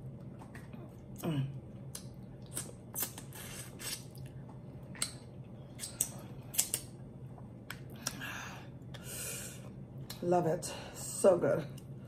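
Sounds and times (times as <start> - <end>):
lip smacks: 1.8 - 8.2
wet chewing and sucking: 1.8 - 8.2.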